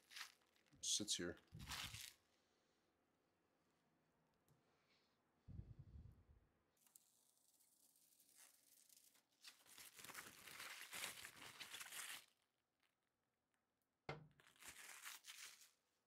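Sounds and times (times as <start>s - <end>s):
faint rustling and crinkling: 0.0s - 2.3s, 6.8s - 12.3s, 14.4s - 15.8s.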